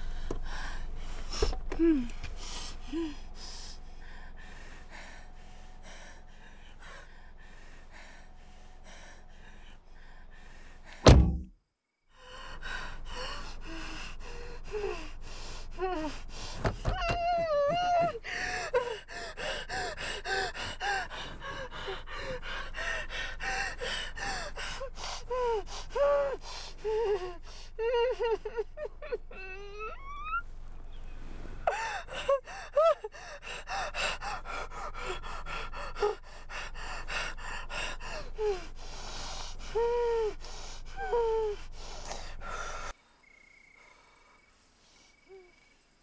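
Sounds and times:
loud thump: 11.0s - 11.5s
woman sobbing: 13.2s - 30.4s, 31.7s - 36.7s, 39.7s - 41.8s
woman whimpering and wailing: 16.8s - 21.1s, 25.4s - 30.5s, 31.7s - 34.0s.

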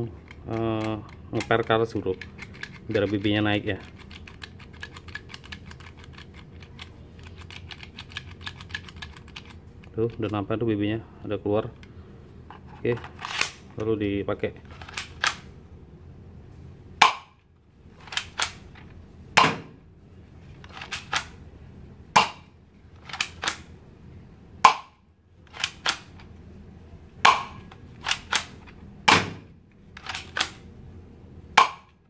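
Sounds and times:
toy pistol plastic snaps: 18.0s - 18.6s, 23.1s - 23.7s, 25.5s - 26.2s, 27.3s - 29.4s, 30.0s - 30.6s.

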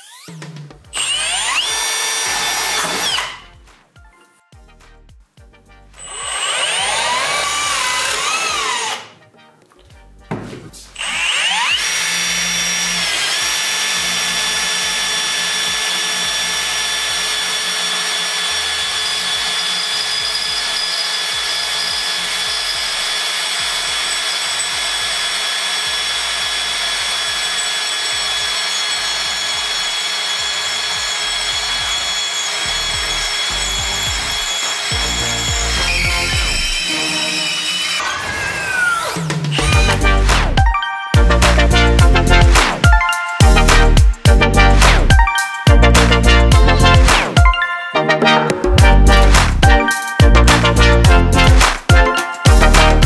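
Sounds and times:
drill boring into metal: 1.0s - 3.5s, 6.0s - 9.1s, 11.0s - 40.2s.

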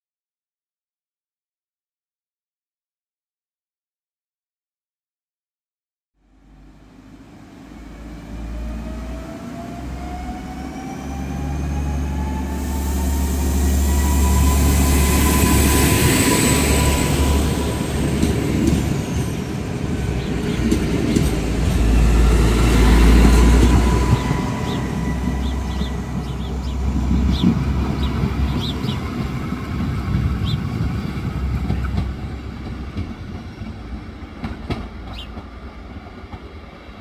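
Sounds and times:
wheels rumbling on rail: 6.3s - 37.0s
train wheels clicking: 20.1s - 36.6s.

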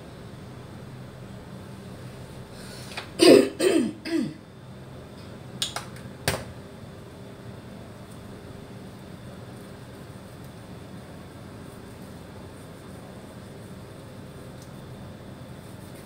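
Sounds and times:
woman clearing throat: 3.2s - 4.4s.

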